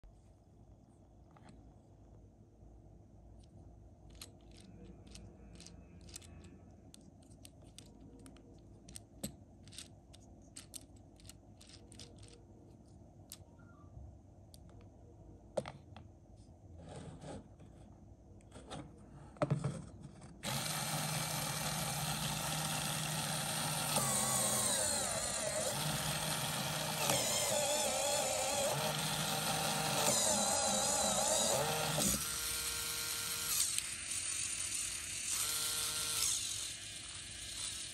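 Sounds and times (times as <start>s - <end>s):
electric motor whirring: 20.4s - 37.9s.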